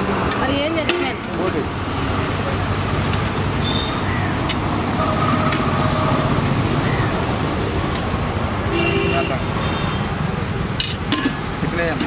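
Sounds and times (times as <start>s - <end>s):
roadside traffic noise: 0.0s - 12.0s.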